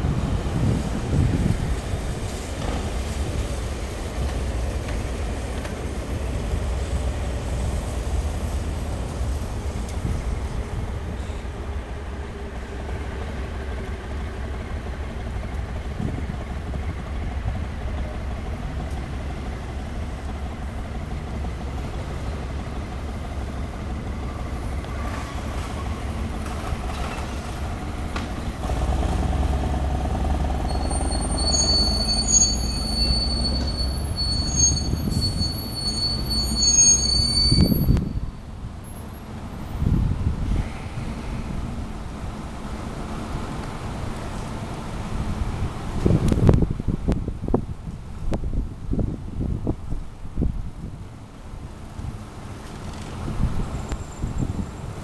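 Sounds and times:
wind rumble on microphone: 0.0s - 11.2s, 15.4s - 18.9s, 37.3s - 38.9s, 39.6s - 42.4s, 43.5s - 55.0s
train passing: 0.0s - 46.1s
train wheels squealing: 30.0s - 38.4s.

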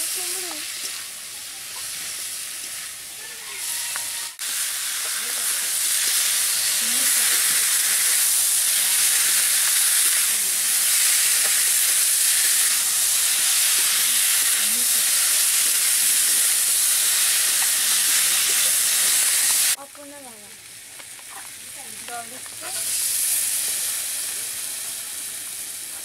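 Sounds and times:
vegetables sizzling in oil: 0.0s - 26.0s
spatula stirring: 3.6s - 19.8s.

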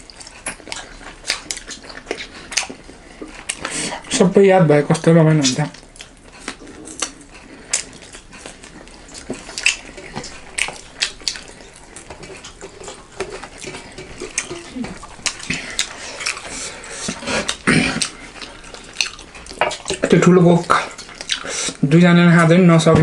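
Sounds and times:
chewing: 0.0s - 22.9s
plates and cutlery clinking: 12.1s - 15.6s, 19.5s - 20.3s.

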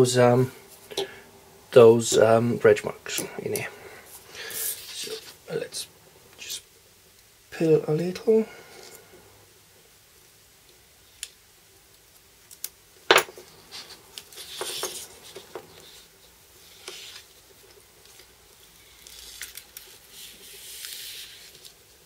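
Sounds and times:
paper crackling and rustling: 13.7s - 22.0s.

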